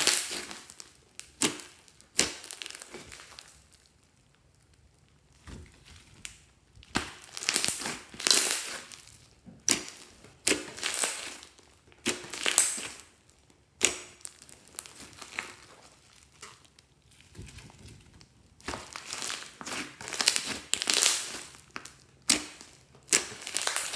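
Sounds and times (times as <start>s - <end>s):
slime crackling and popping: 0.0s - 23.9s
sharp slime pop: 1.2s - 3.4s, 9.6s - 11.4s, 13.8s - 15.5s, 18.6s - 23.9s.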